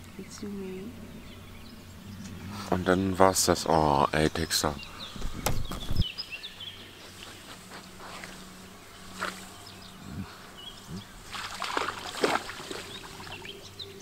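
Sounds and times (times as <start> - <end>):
small birds chirping: 0.0 - 14.0
dog splashing in water: 11.3 - 13.4.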